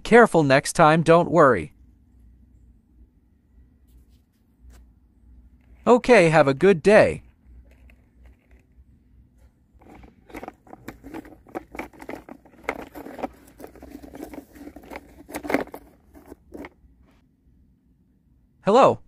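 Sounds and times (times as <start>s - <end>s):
toy truck scraping on dirt: 7.4s - 8.8s, 9.8s - 16.8s.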